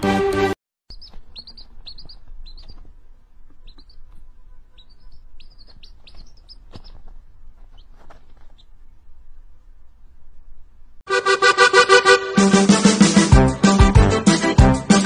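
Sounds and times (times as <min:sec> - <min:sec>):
chick peeping: 0:00.9 - 0:09.0.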